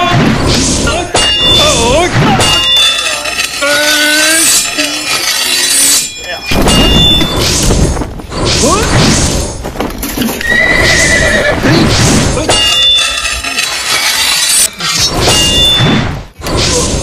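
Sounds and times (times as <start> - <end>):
horse whinnies: 10.4 - 11.7.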